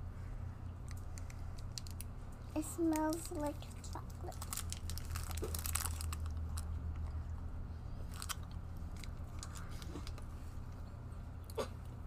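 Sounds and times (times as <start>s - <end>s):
steady low hum: 0.0s - 12.0s
chewing crunchy candy bar: 0.8s - 2.2s, 2.9s - 10.4s.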